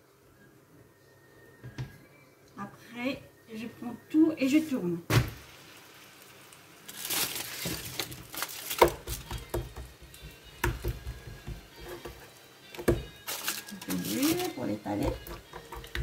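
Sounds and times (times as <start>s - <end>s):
hands patting dough: 8.7s - 11.7s.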